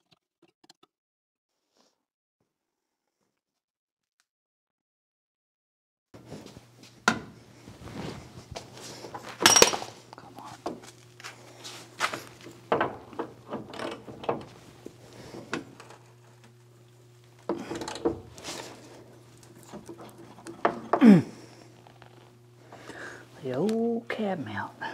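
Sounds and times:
steady low hum: 6.2s - 24.9s.

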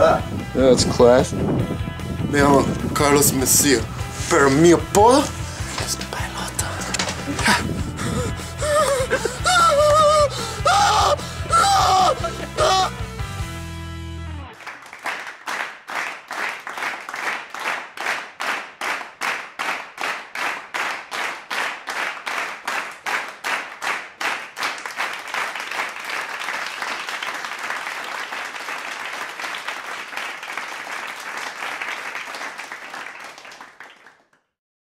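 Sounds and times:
continuous applause: 3.2s - 13.0s, 14.5s - 34.6s
crowd clapping in unison: 5.0s - 7.9s, 8.6s - 11.2s, 14.5s - 34.6s.

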